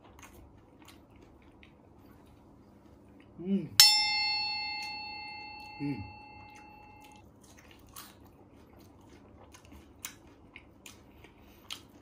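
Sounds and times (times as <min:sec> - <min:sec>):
person chewing crispy food: 0:00.0 - 0:03.4, 0:06.5 - 0:12.0
person humming: 0:03.4 - 0:03.9, 0:04.8 - 0:06.7
bell-like chime: 0:03.8 - 0:07.1.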